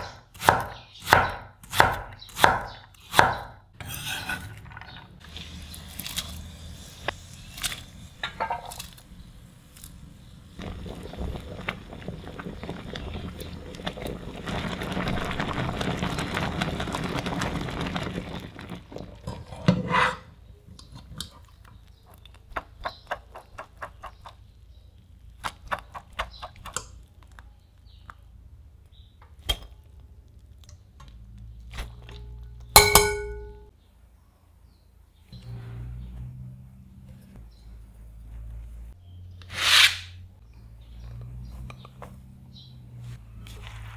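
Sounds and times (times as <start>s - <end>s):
glass bowl ringing clink: 32.8s - 33.7s.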